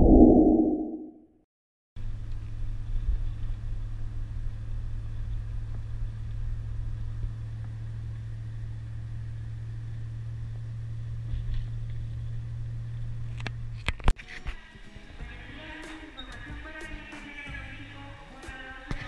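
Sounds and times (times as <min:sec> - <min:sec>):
car engine and road noise drone: 0:02.0 - 0:14.0.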